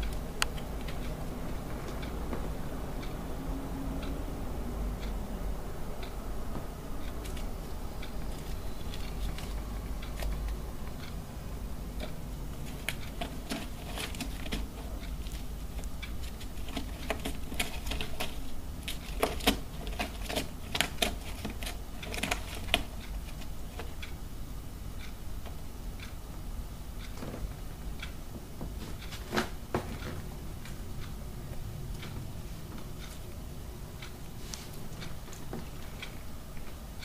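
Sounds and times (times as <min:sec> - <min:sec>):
squirrel gnawing cardboard: 0:07.0 - 0:11.1, 0:12.0 - 0:24.0.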